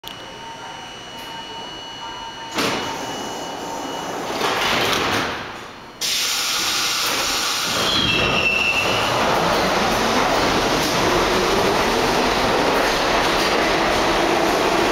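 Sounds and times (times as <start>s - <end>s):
train doors closing: 2.5s - 14.9s
loud hiss of air: 6.0s - 8.9s.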